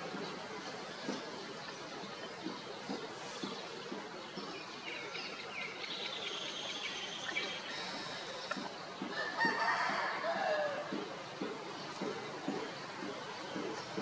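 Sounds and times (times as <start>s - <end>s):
small birds chirping: 0.0s - 9.5s, 10.2s - 14.0s
outdoor background noise: 0.0s - 14.0s.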